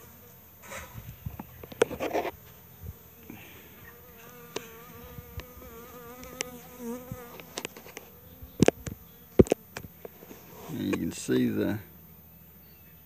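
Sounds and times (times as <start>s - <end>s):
bees buzzing: 0.0s - 12.2s
microphone handling noise: 0.6s - 3.0s.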